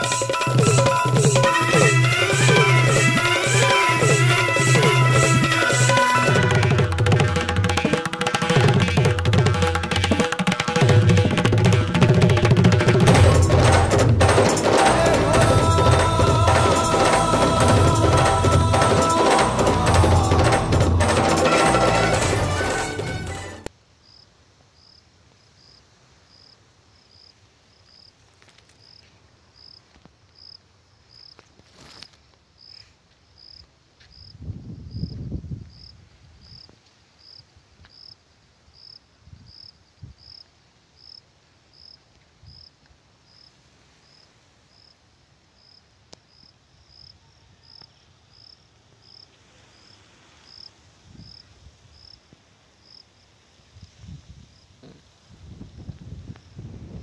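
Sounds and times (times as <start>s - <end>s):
cricket chirping: 24.0s - 55.0s.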